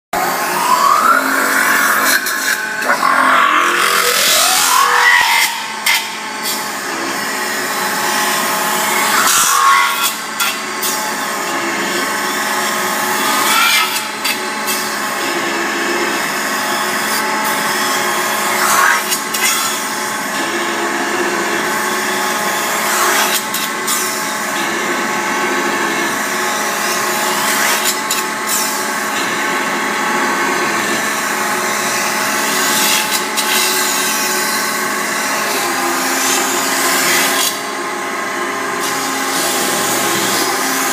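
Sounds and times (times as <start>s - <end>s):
short rising squeal: 0.2s - 6.7s.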